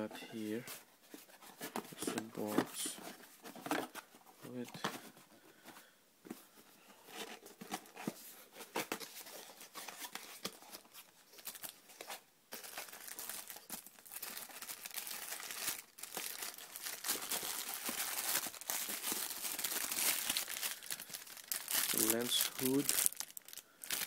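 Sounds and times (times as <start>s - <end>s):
cardboard box rustling: 0.5s - 5.2s, 7.0s - 13.4s
plastic bag crinkling: 12.5s - 24.0s.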